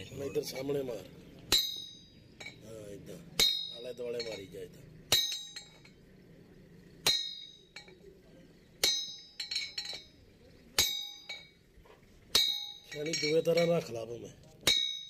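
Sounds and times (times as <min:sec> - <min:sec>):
hammer striking metal: 0:01.5 - 0:02.6, 0:03.3 - 0:04.5, 0:05.1 - 0:06.0, 0:07.0 - 0:08.1, 0:08.8 - 0:10.1, 0:10.8 - 0:11.6, 0:12.3 - 0:13.9, 0:14.6 - 0:15.0.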